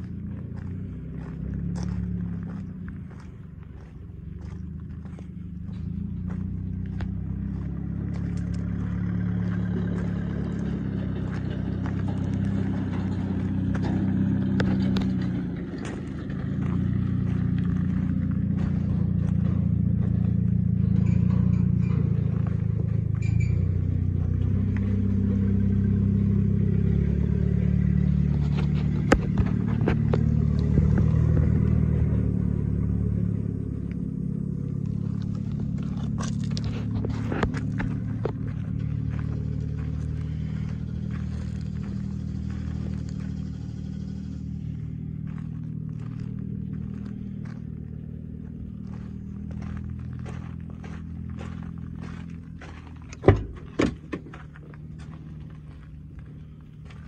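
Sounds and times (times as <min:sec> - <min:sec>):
diesel truck engine idling: 0:00.0 - 0:57.0
clicks and scrapes: 0:35.1 - 0:38.5.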